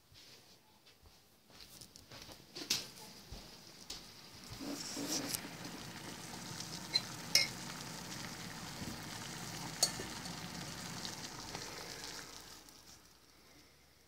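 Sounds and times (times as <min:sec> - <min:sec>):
water boiling in saucepan: 0:03.5 - 0:14.0.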